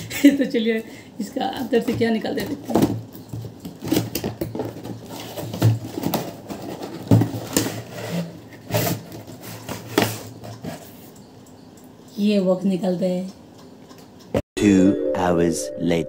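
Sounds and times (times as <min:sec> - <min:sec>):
cardboard box being opened: 0:03.8 - 0:10.2.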